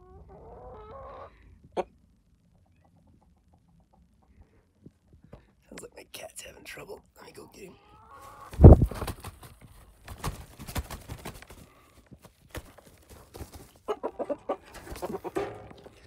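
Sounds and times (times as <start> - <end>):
chickens clucking: 0.0 - 4.5, 7.7 - 16.0.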